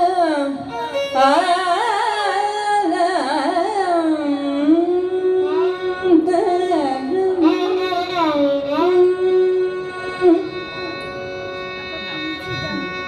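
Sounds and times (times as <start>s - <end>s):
steady drone: 9.4s - 13.0s.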